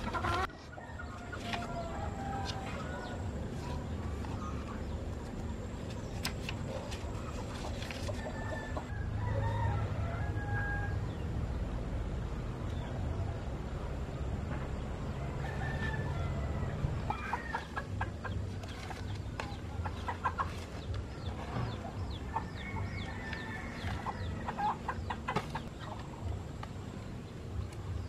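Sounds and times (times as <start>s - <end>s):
chickens clucking: 0.0s - 8.9s, 14.5s - 28.0s.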